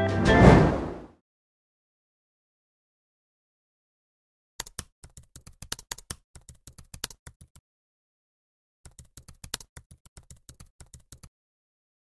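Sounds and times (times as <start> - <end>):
keyboard typing clicks: 4.6 - 7.6, 8.9 - 11.3.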